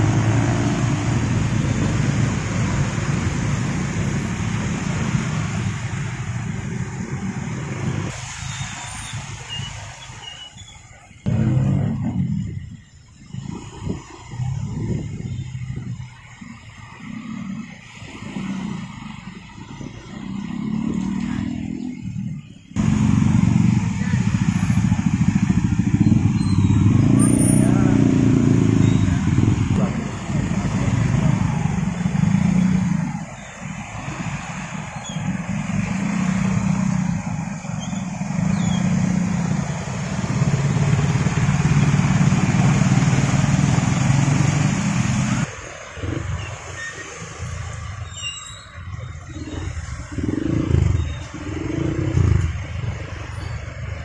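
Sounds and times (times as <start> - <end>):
traffic engines running: 0.0 - 54.0
water spraying off tyres: 0.0 - 54.0
motor scooter engines running: 22.8 - 45.6.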